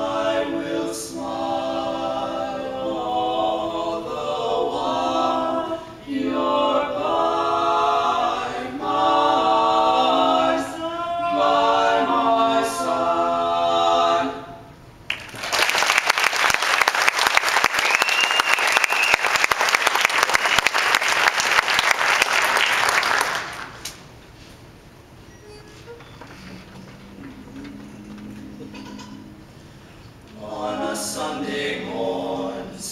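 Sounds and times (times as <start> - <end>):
male quartet singing a cappella: 0.0 - 14.7, 27.7 - 32.9
audience applauding: 15.1 - 23.9.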